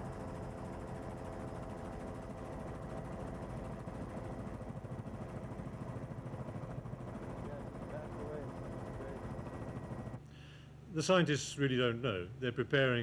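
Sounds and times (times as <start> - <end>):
helicopter engine drone: 0.0 - 10.2.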